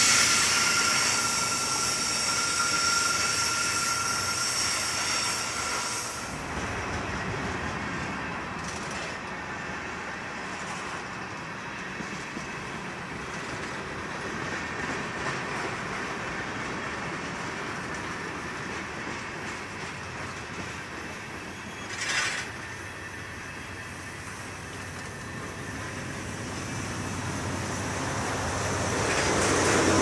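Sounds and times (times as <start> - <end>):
train wheels rumbling on track: 0.0 - 30.0.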